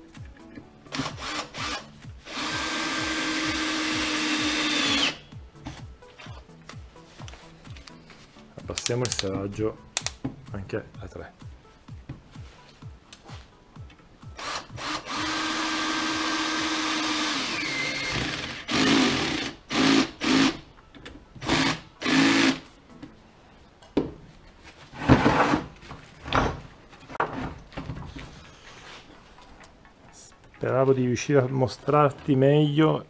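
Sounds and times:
cordless drill driving a screw: 0.9s - 5.2s, 14.4s - 20.6s, 21.4s - 22.6s.

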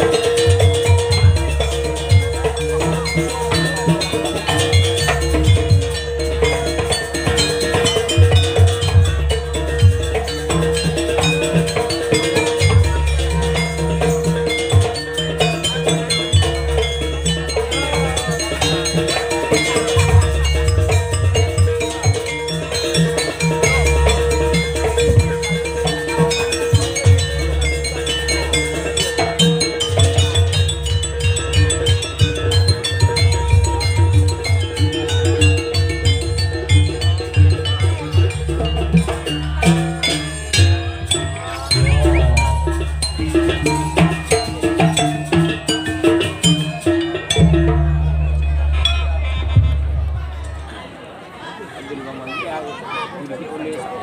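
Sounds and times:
metallophone strikes: 0.0s - 50.7s
drums: 0.0s - 51.2s
gamelan ensemble playing: 0.0s - 52.3s
steady held high tone: 39.3s - 44.6s.

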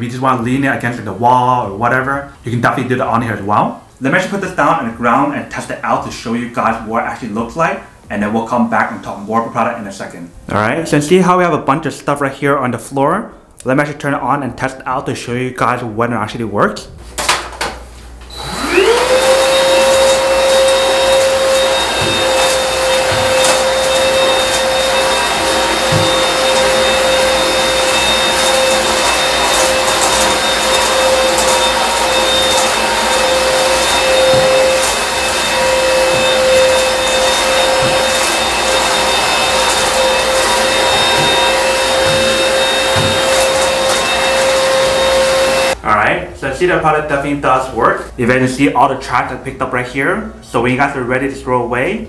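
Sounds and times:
vacuum cleaner motor whining: 18.2s - 45.8s.

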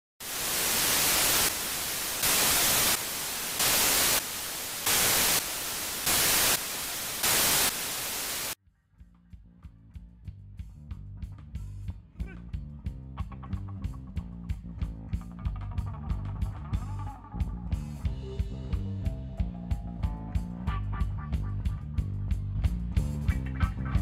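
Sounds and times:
television static hiss: 0.2s - 8.6s.

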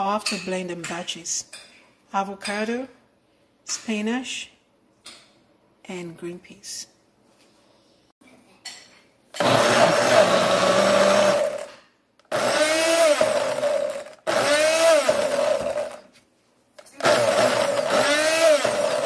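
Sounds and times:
blender motor whining: 9.4s - 11.7s, 12.3s - 16.0s, 17.0s - 19.0s.

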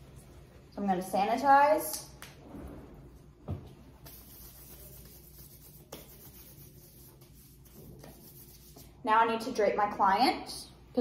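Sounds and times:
gloved hands rubbing: 4.0s - 9.0s.

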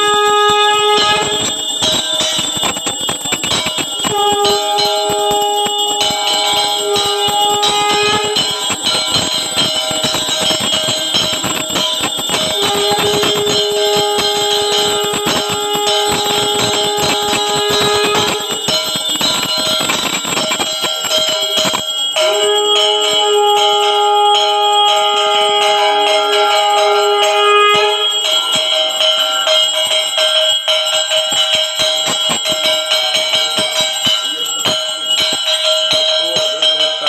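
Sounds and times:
hand bells rung rapidly: 0.0s - 37.0s
low held tone: 12.1s - 19.5s.

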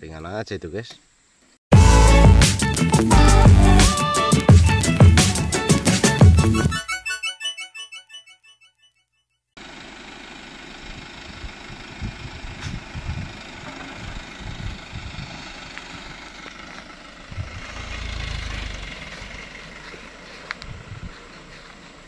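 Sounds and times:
truck engine idling: 9.6s - 22.0s
low rumble: 11.0s - 21.4s
wind buffeting microphone: 11.3s - 16.3s, 17.2s - 21.7s.

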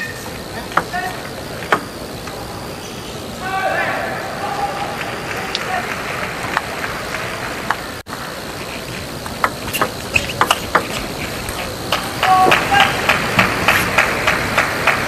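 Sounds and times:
arena hall hum: 0.0s - 15.0s
crowd reacting: 3.4s - 8.0s, 11.8s - 15.0s
table tennis ball clicking: 9.3s - 12.6s.

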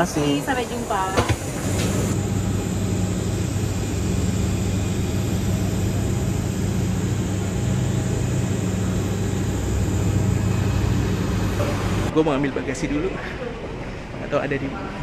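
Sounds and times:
low machinery drone: 0.0s - 12.2s.

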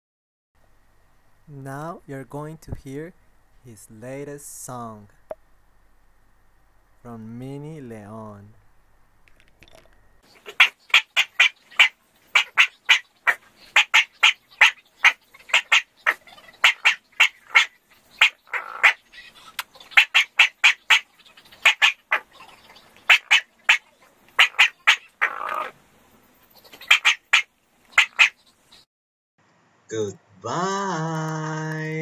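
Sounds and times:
small dog yapping: 10.4s - 19.0s, 19.8s - 25.7s.

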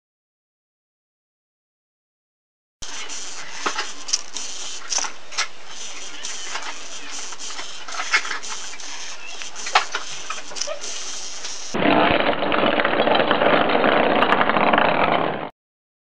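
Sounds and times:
servo motors whirring: 2.8s - 11.8s.

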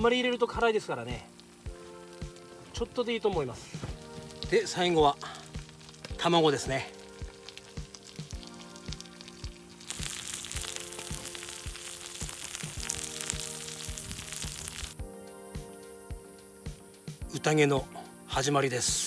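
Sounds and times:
food sizzling in a pan: 0.0s - 15.0s
background music with steady beat: 0.0s - 19.0s.

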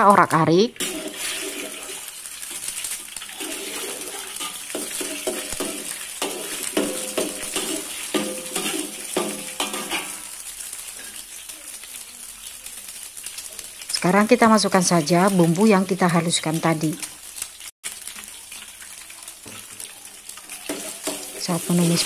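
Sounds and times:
eggs sizzling in hot oil: 0.0s - 22.0s
metal spatula scraping wok: 0.8s - 10.4s, 20.3s - 22.0s.

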